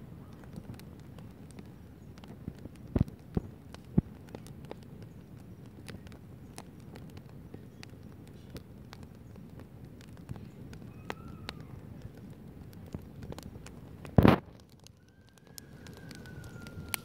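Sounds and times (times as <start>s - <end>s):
campfire crackling: 0.0s - 17.0s
sharp pops of fire: 0.1s - 17.0s.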